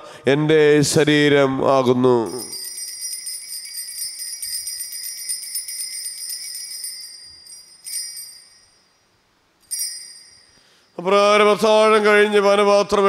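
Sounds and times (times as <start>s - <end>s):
altar bells jingling: 2.3s - 11.0s
short bell ring: 2.3s - 11.0s.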